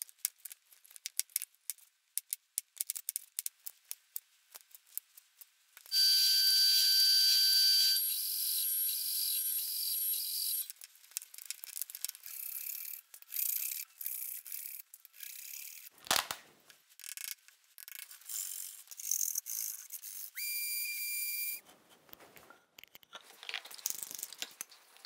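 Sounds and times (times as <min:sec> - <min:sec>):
high whistle-like tone: 0:05.9 - 0:10.7, 0:20.4 - 0:21.6.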